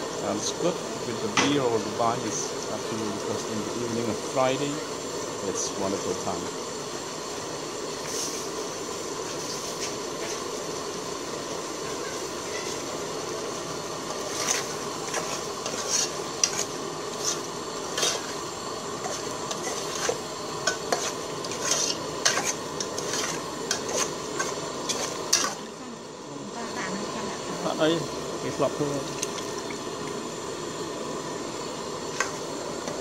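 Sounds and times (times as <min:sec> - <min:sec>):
steady hiss: 0:00.0 - 0:33.0
ladle scraping metal pot: 0:14.1 - 0:18.4, 0:19.0 - 0:25.6.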